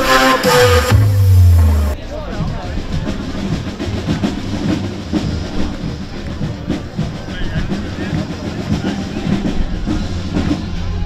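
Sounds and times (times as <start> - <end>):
crowd talking: 0.0 - 11.0
drum-led music: 0.0 - 11.0
low rumble: 0.8 - 2.0.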